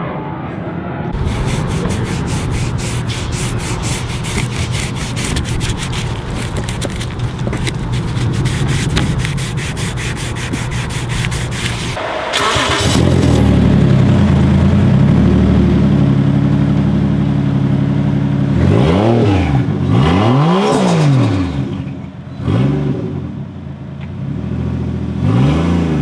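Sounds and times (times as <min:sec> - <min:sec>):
towel wiping plastic trim: 0:01.2 - 0:12.0
car engine idling: 0:01.2 - 0:18.6.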